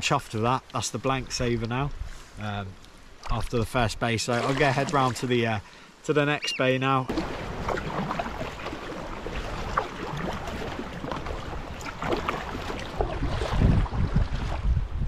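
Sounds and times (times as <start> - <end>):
splashing and dripping water: 4.2 - 5.4, 7.1 - 14.7
paddle strokes through water: 6.4 - 15.0
wind buffeting microphone: 7.1 - 15.0.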